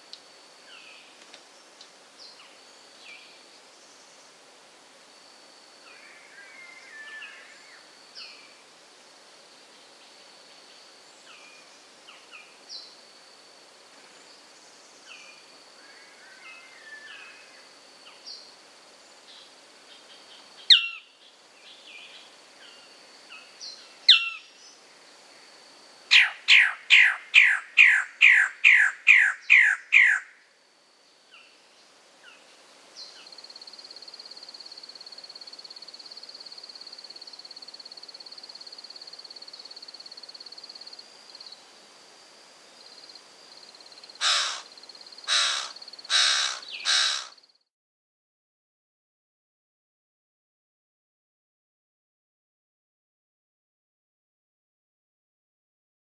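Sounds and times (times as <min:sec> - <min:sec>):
bird calling: 0:26.1 - 0:30.3, 0:44.2 - 0:44.7, 0:45.3 - 0:47.4.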